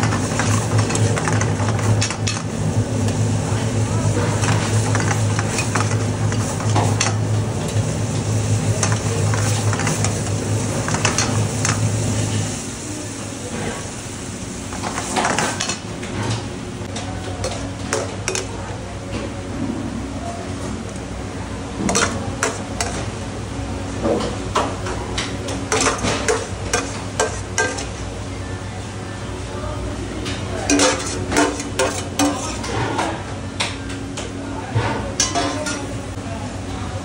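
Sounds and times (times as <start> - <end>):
steady sizzle: 0.0 - 15.8
metal clanks against pot: 10.9 - 11.8, 17.4 - 18.6, 21.8 - 23.1, 25.5 - 27.9, 30.6 - 33.1.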